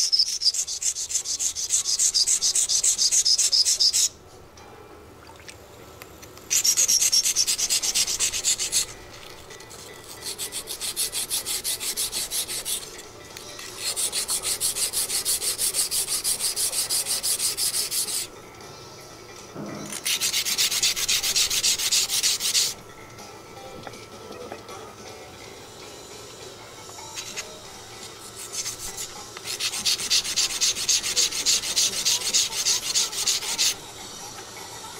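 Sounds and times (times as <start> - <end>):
whetstone scraping steel blade: 0.0 - 4.1, 6.5 - 18.3, 19.8 - 22.8, 27.0 - 33.8.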